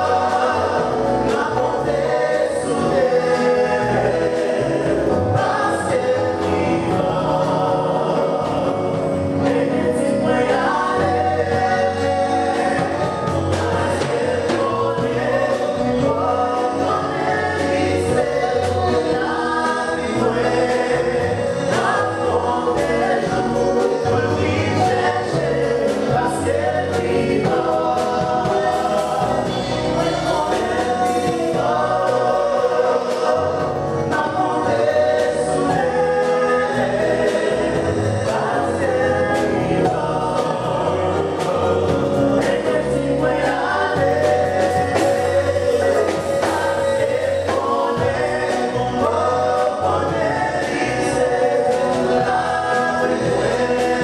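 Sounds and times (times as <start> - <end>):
band on keyboards and guitars: 0.0 - 54.0
gospel vocal group singing: 0.0 - 54.0.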